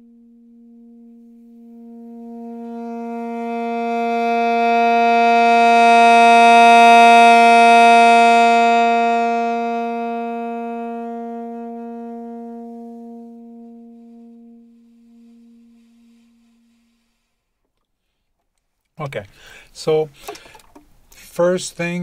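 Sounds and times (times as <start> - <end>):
saxophone long tone: 0.0 - 17.4.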